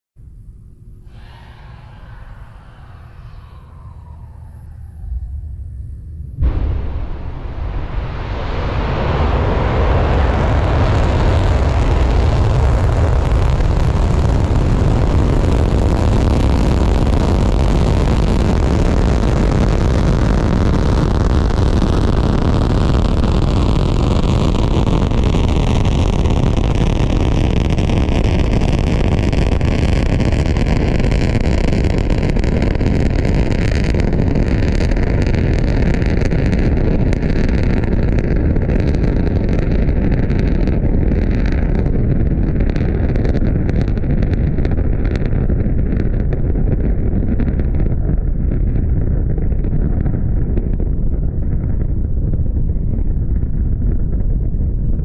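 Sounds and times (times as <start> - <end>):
rocket engines roaring: 0.4 - 51.9
hollow sweep falling in pitch: 1.0 - 12.8.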